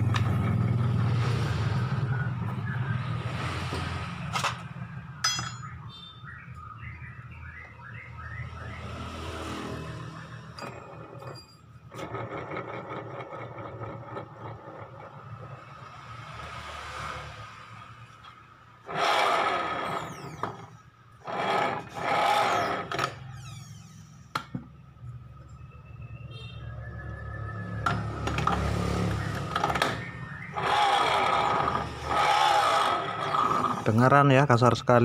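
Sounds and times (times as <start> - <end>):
sharp metallic clinks: 5.2 - 5.9.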